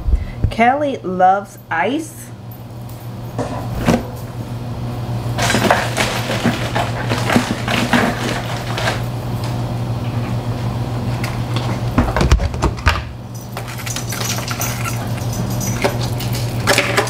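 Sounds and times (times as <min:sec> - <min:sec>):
steady low hum: 0:00.0 - 0:17.0
objects clicking and knocking: 0:11.6 - 0:17.0.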